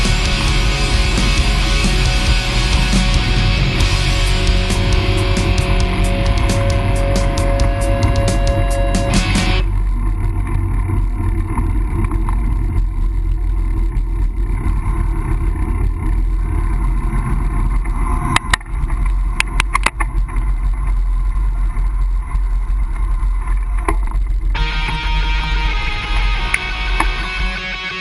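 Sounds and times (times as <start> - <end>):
road noise: 0.0 - 18.2.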